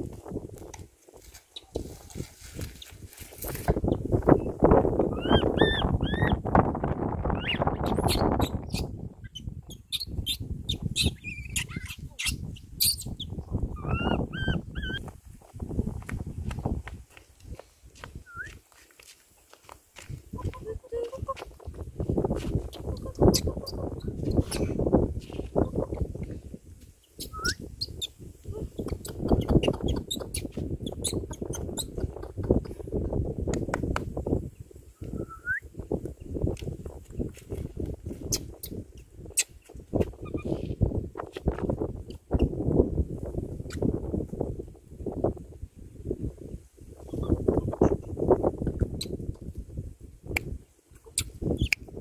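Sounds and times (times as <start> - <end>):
baby monkey crying: 5.1 - 6.4
infant monkey chirps and squeaks: 5.1 - 6.4, 7.3 - 15.0, 22.6 - 26.0, 27.0 - 32.6, 38.3 - 39.6, 40.2 - 40.7, 47.0 - 48.0, 51.1 - 51.8.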